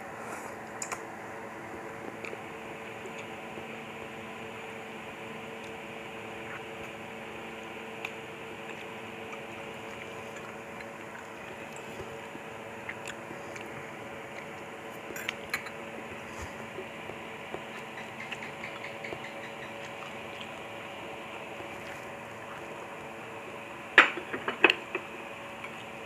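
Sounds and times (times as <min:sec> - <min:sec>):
steady hum: 0:00.0 - 0:26.0
faint chewing: 0:08.0 - 0:23.0
utensils clinking against bowl: 0:15.1 - 0:15.8.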